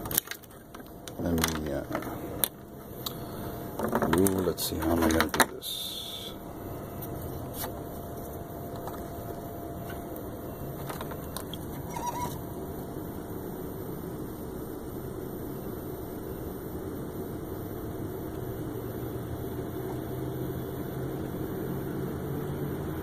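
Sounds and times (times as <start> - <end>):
faint handling clicks and taps: 0.0 - 3.2, 3.8 - 5.6
low mechanical hum: 0.0 - 23.0.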